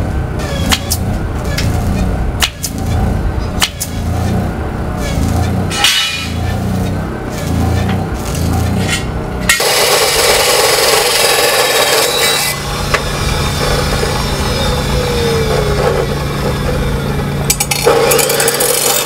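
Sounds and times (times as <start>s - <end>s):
cut-off saw grinding: 0.4s - 19.0s
saw motor hum: 6.4s - 19.0s.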